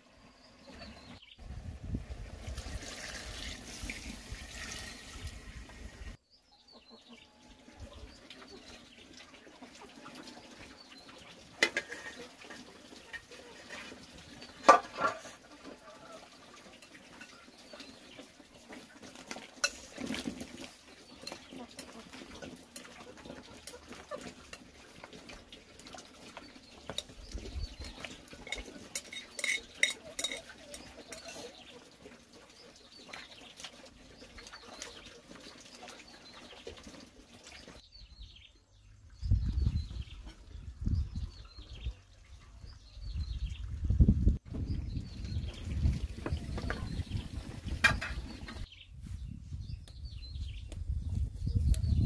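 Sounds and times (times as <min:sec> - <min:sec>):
chopsticks clinking on metal pot: 0:28.4 - 0:31.5.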